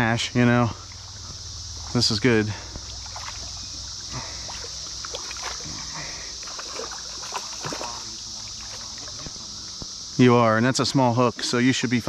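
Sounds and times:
cicadas droning: 0.0s - 12.0s
fish splashing in water: 2.8s - 9.4s.

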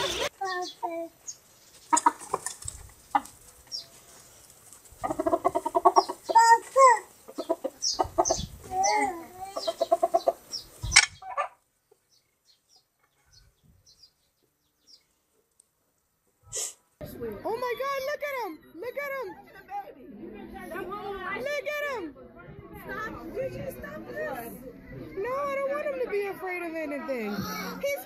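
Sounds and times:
chickens clucking and squawking: 0.0s - 0.9s, 1.7s - 4.1s, 4.9s - 11.6s.

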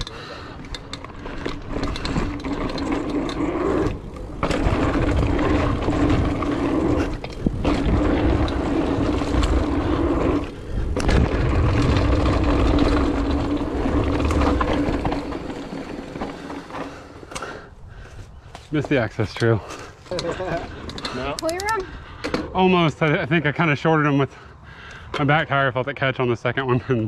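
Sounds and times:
bike tyres rumbling on dirt: 0.0s - 21.2s
wind on microphone: 4.6s - 15.0s.

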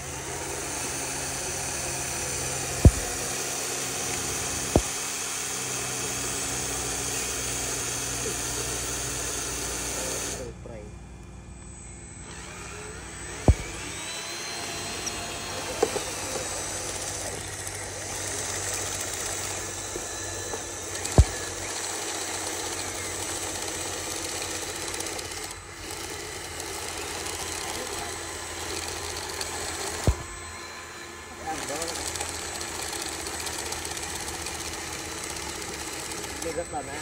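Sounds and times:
small motors whirring: 0.0s - 37.0s
sharp clicks: 2.4s - 5.0s, 13.4s - 23.4s.

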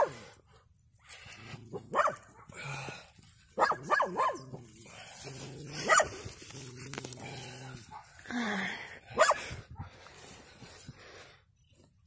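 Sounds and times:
dog barking: 1.9s - 2.5s, 3.6s - 4.6s, 5.8s - 6.1s, 9.2s - 9.5s.

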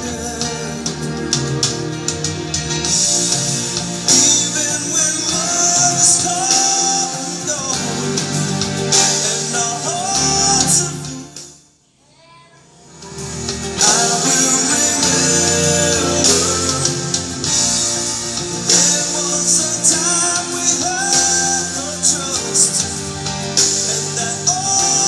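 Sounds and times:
song with singing and guitar: 0.0s - 11.6s, 12.9s - 25.0s.

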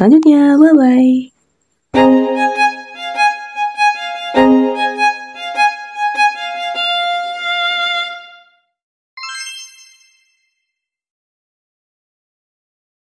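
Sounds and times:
light background music: 2.0s - 8.5s
short bright chime: 9.2s - 10.8s.

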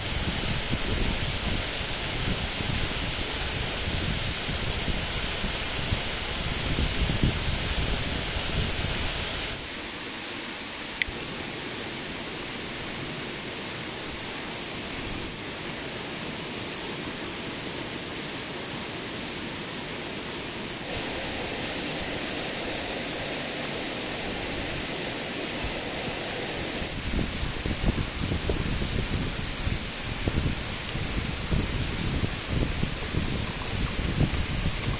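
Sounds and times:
gas camping stove hissing: 0.0s - 10.1s, 17.7s - 34.9s
waterfall rushing: 0.0s - 34.9s.

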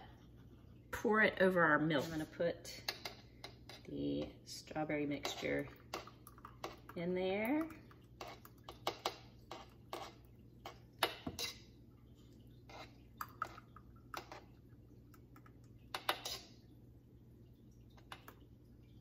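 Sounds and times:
metal spoon scraping bowl: 5.1s - 6.1s, 8.2s - 10.2s, 11.0s - 11.7s, 12.7s - 13.0s, 16.0s - 16.6s.

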